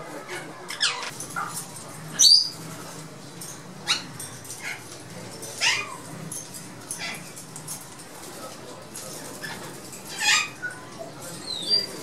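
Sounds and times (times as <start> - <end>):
parakeets screeching: 0.2 - 2.7, 3.8 - 4.9, 5.5 - 6.1, 6.8 - 7.4, 9.3 - 12.0.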